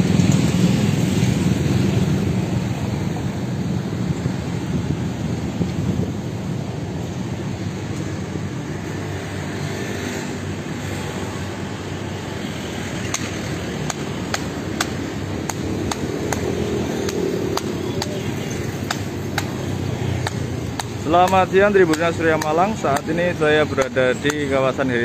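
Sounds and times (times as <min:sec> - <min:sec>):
street traffic rumble: 0:00.0 - 0:25.0
paving stones being tapped: 0:13.0 - 0:24.7.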